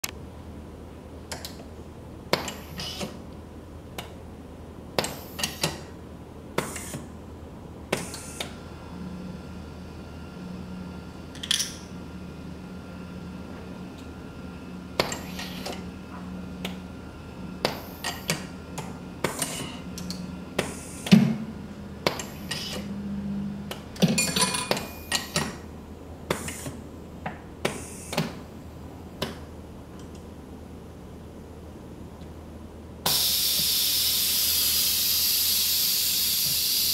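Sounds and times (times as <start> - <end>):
low machine hum: 0.0 - 36.9
pneumatic cylinders clacking: 2.4 - 3.2, 5.0 - 5.9, 7.9 - 8.5, 26.3 - 26.8.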